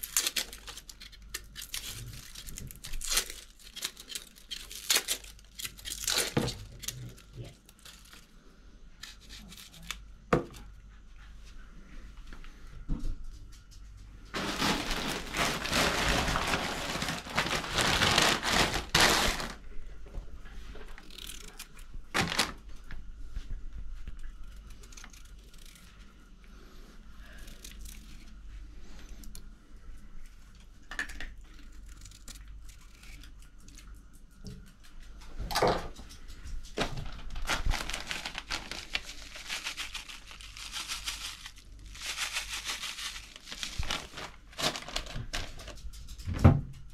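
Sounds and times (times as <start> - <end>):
plastic packet crinkling: 0.0 - 8.3, 14.3 - 19.6, 20.9 - 22.6, 36.8 - 46.0
garlic clove peeling crackles: 0.0 - 8.4, 9.0 - 10.2, 20.8 - 22.5, 24.1 - 26.0, 27.3 - 28.4, 31.1 - 35.1.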